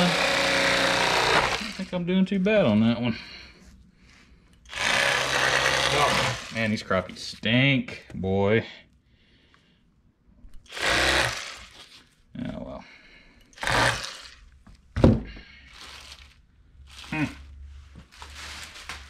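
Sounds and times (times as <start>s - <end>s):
electric fillet knife buzzing: 0.0s - 1.9s, 4.7s - 6.8s, 10.7s - 11.9s, 13.6s - 14.4s.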